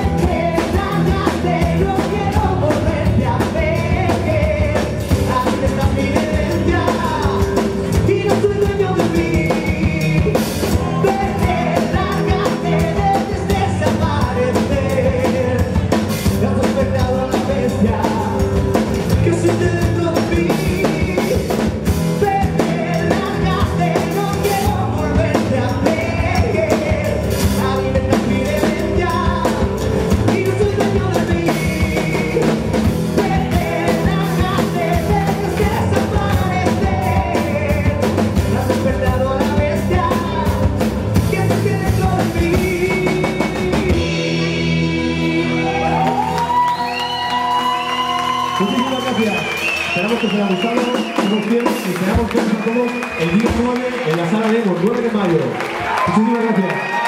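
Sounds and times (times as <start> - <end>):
man singing into a microphone: 0.0 - 46.7
guitars: 0.0 - 53.6
pounding drum kit: 0.0 - 57.0.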